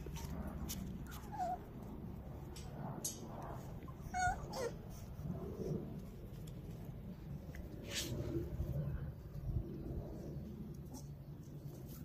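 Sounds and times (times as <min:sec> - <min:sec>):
dog whimpering: 0:01.1 - 0:01.7, 0:04.0 - 0:04.8.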